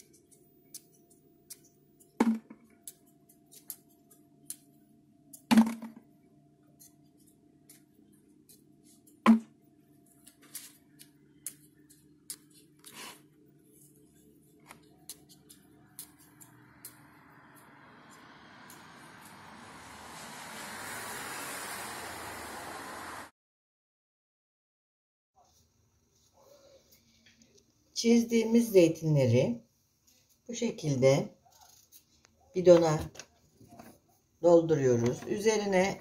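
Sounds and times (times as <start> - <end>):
olives dropping into plastic jar: 5.5 - 6.1.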